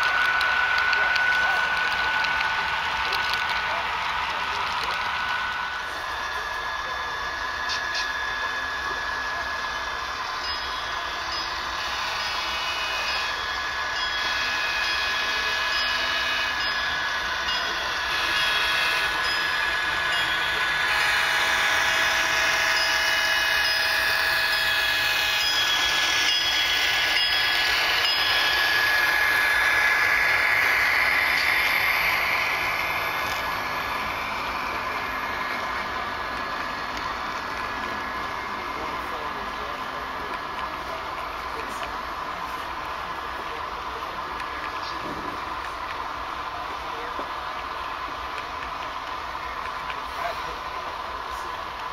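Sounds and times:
model train running: 0:00.0 - 0:51.9
steady high tones: 0:00.0 - 0:51.9.

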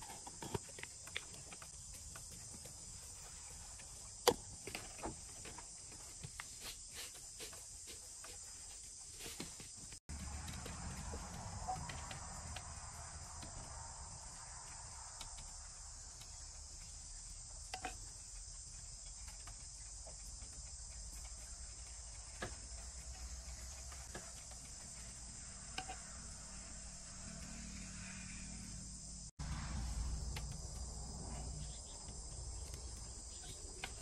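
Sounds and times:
high-pitched insect chorus: 0:10.2 - 0:34.0.

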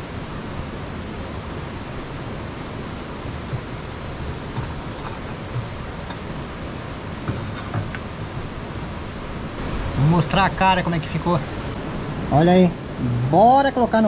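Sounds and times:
outdoor background hiss: 0:00.0 - 0:14.0
pot lid handled: 0:07.3 - 0:08.1
metal pot knocking on wooden table: 0:07.3 - 0:08.4.

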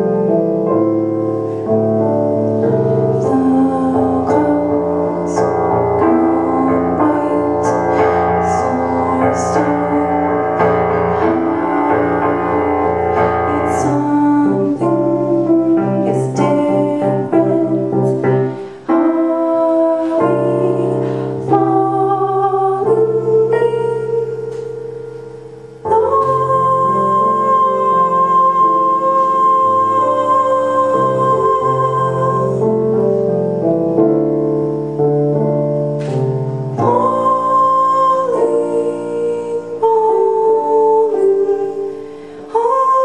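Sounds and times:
keyboard accompaniment: 0:00.0 - 0:43.0
woman singing: 0:02.0 - 0:24.9, 0:25.8 - 0:33.4, 0:36.8 - 0:43.0.

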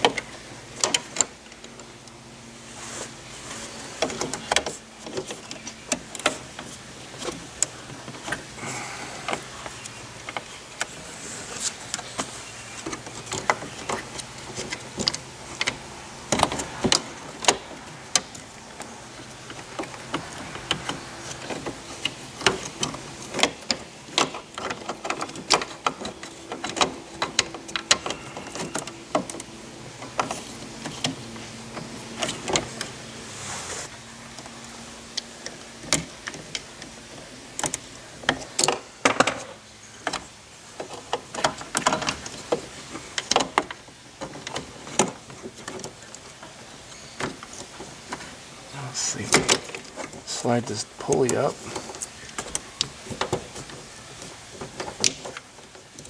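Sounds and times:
faint steady hum: 0:00.0 - 0:56.0
plastic parts clicking and rattling: 0:04.0 - 0:31.2.

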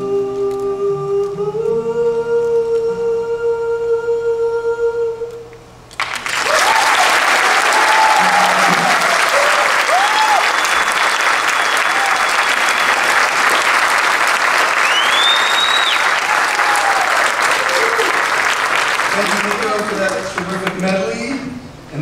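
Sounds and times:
people cheering: 0:06.0 - 0:20.6
audience applauding: 0:06.0 - 0:21.0
whistle: 0:10.0 - 0:13.8, 0:14.8 - 0:16.2.

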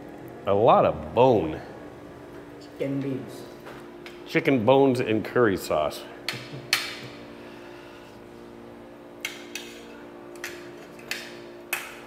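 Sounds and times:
steady low hum: 0:00.0 - 0:12.0
utensils clicking against dishes: 0:09.2 - 0:12.0.

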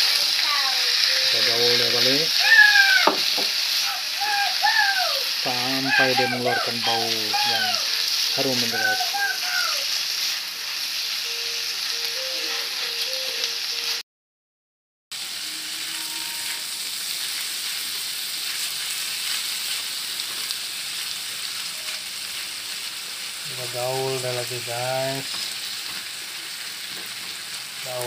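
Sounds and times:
food sizzling in a wok: 0:00.0 - 0:14.0, 0:15.1 - 0:28.0
spatula stirring in a wok: 0:07.3 - 0:12.9, 0:15.7 - 0:22.9.

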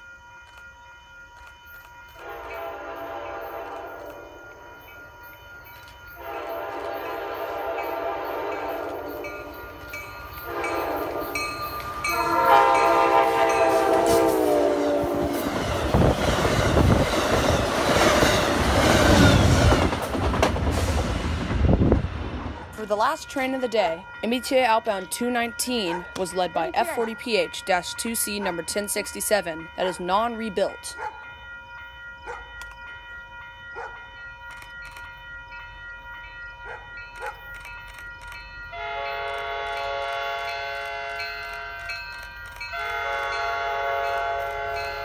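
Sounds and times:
crossing bell ringing: 0:00.0 - 0:20.1, 0:22.7 - 0:45.0
locomotive horn blasts: 0:02.2 - 0:04.3, 0:06.2 - 0:09.6, 0:10.4 - 0:15.4, 0:38.8 - 0:41.4, 0:42.8 - 0:45.0
train wheels rushing on rail: 0:06.2 - 0:23.2.

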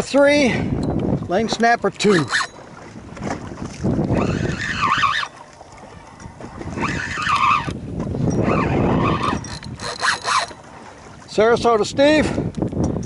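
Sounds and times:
fishing reel gears whirring: 0:02.1 - 0:02.6, 0:04.0 - 0:05.4, 0:06.2 - 0:10.6.

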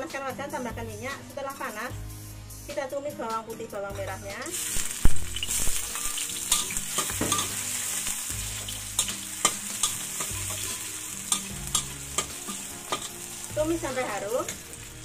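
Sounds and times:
garlic sizzling in hot oil: 0:03.9 - 0:15.0
metal spatula scraping wok: 0:04.6 - 0:15.0.

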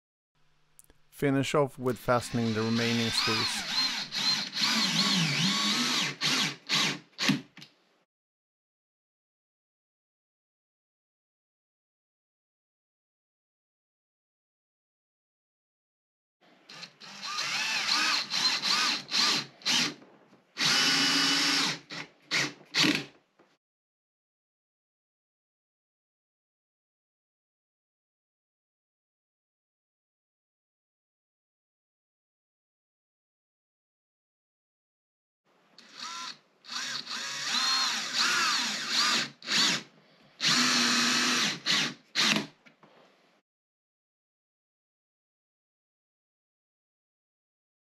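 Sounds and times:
cordless drill driving screws: 0:02.3 - 0:07.5, 0:16.7 - 0:20.0, 0:20.6 - 0:23.1, 0:35.8 - 0:42.5.

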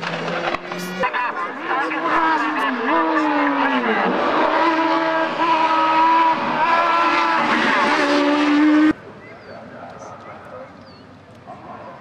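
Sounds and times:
race car engine at high revs: 0:00.0 - 0:09.0.

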